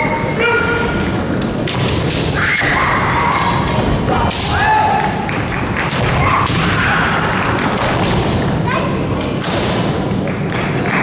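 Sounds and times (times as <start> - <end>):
sharp knocks of bamboo swords: 1.6 - 4.9.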